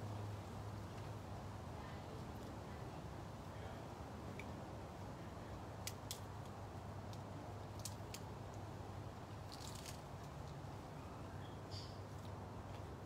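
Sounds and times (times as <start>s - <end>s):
sharp clicks and crunches: 7.1s - 8.6s, 9.4s - 10.6s.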